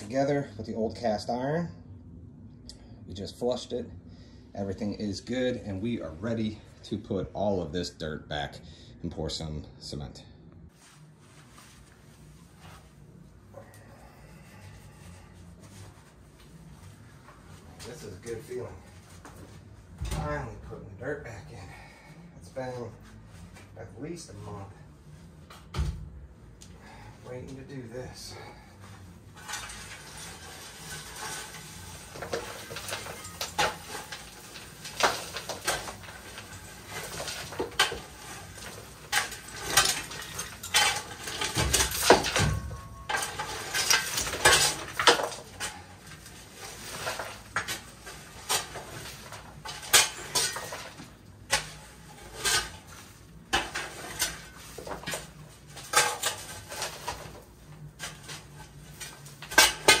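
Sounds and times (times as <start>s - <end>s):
shovel scraping gravelly dirt: 29.4s - 42.3s.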